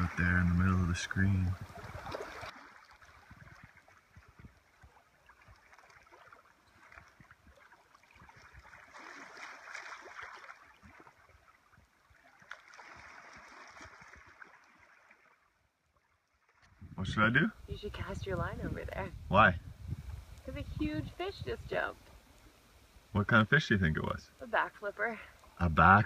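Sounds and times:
waves lapping among rocks: 0.0 - 16.8, 17.6 - 19.1, 20.1 - 22.6.

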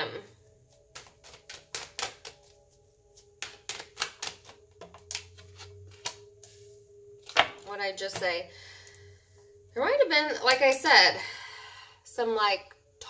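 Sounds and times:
cards shuffling and snapping: 0.7 - 2.6, 3.2 - 6.2, 7.2 - 7.6.

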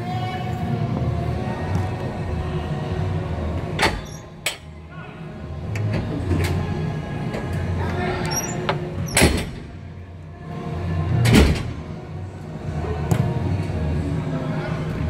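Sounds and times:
faint voices: 11.9 - 15.0.

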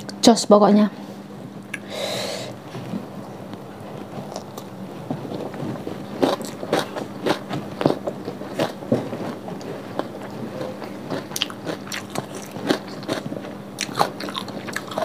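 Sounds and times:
crunchy chewing: 3.9 - 15.0.

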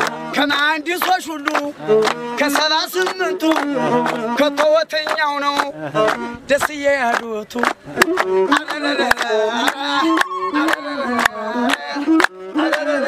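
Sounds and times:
hands clapping a beat: 0.0 - 13.0
person singing: 0.0 - 13.0
bowed fiddle: 1.5 - 6.7, 7.5 - 13.0.

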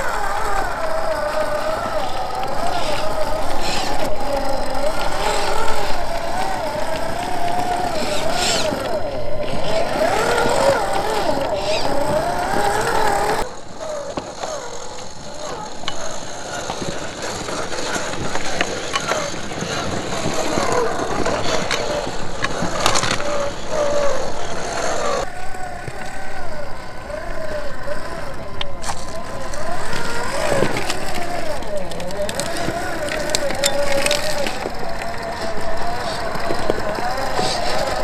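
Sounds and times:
electric motor and gear whine: 0.0 - 38.0
tyres and stones clicking on rock: 0.0 - 38.0.

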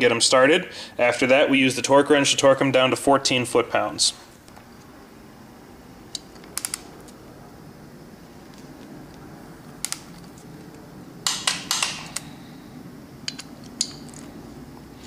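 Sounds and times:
metal bolts and tool clinking: 11.3 - 12.3, 13.2 - 14.3.

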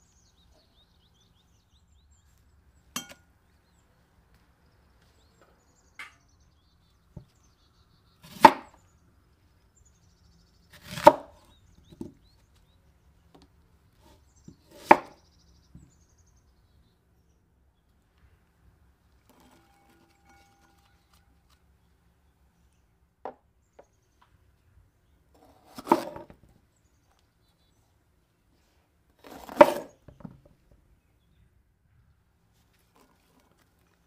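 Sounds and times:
knife chopping on cutting board: 14.7 - 15.1.

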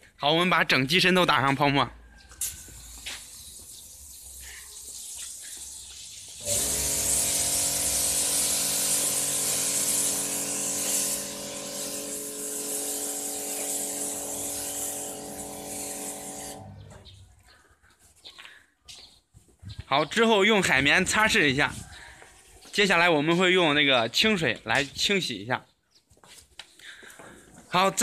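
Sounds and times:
foam spray hissing: 2.4 - 16.7
pump humming: 6.4 - 16.8.

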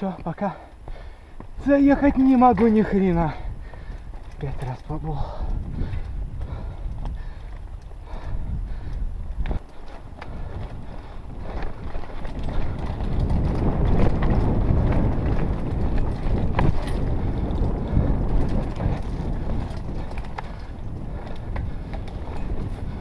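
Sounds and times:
bike knocking and rattling on rocks: 0.0 - 23.0
wind rumble on microphone: 0.0 - 23.0
tyres rolling over dirt and stones: 9.6 - 23.0.

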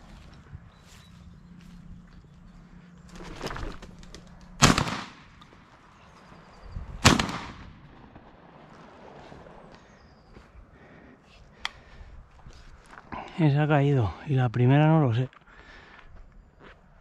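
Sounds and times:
shotgun shots: 4.6 - 5.4, 7.0 - 8.2.

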